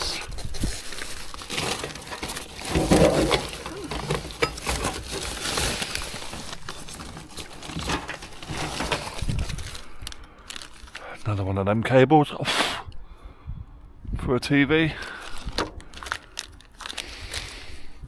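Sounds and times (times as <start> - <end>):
plastic bags and paper crinkling: 0.0 - 11.4, 14.9 - 17.9.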